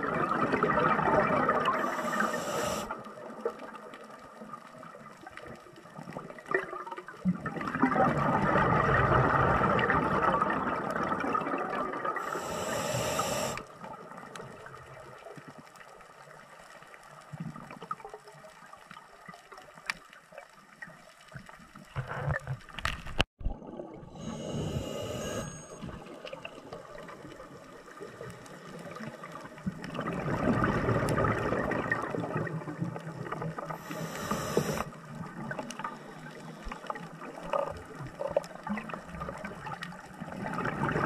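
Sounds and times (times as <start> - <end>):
quiet bubbling: 0.0 - 41.0
high regulator hiss: 1.8 - 2.9, 12.2 - 13.6, 24.2 - 25.9, 33.8 - 34.9
burst of bubbles: 6.5 - 12.3, 29.8 - 33.3.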